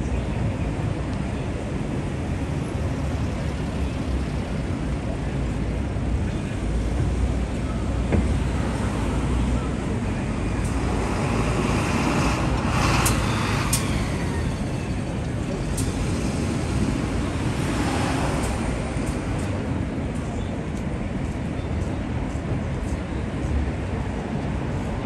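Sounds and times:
city street traffic: 0.0 - 25.0.

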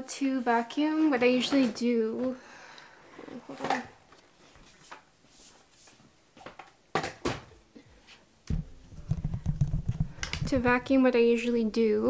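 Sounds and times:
low handling rumble on microphone: 8.6 - 11.0.

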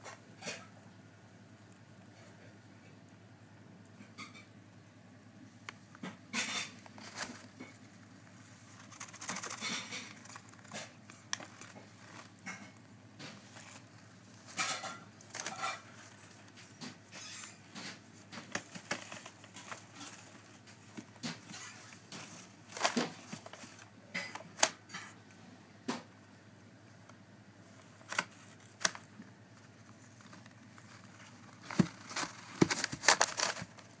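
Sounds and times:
paper rustling and scratching: 6.3 - 25.2, 27.7 - 34.0.

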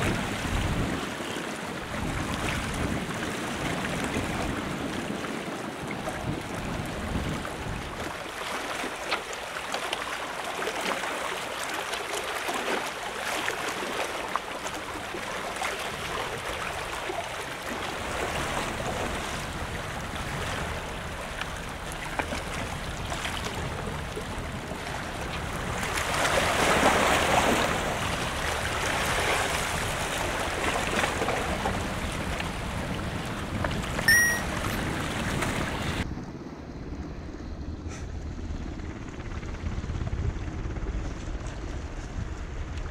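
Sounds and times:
high chirp: 34.1 - 34.8.

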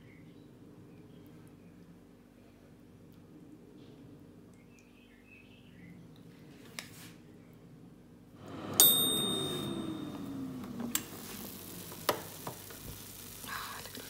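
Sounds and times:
air fryer fan whirring: 8.1 - 14.0
timer bell ding: 8.4 - 10.9.

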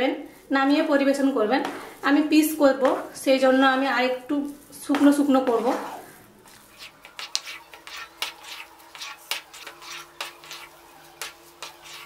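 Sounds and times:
spatula scraping and knocking pan: 4.8 - 12.0.

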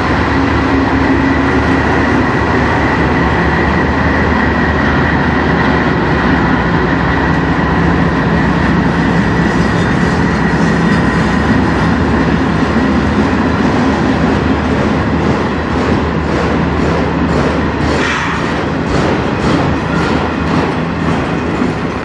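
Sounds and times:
diesel locomotive engine droning: 0.0 - 22.0
train wheels rumbling and clicking: 0.0 - 22.0.

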